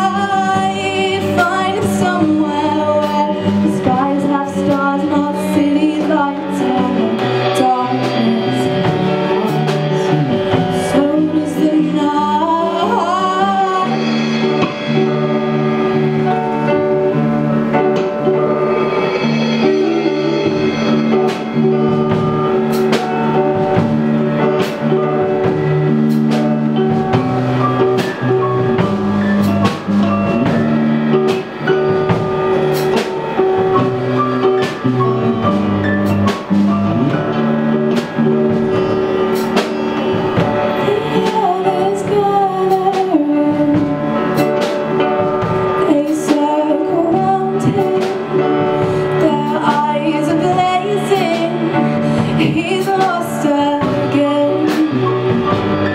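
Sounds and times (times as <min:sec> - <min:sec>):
woman singing: 0:00.0 - 0:15.2, 0:40.4 - 0:55.7
pop-rock band playing: 0:00.0 - 0:55.9
drum hits: 0:06.0 - 0:11.4, 0:13.2 - 0:46.6.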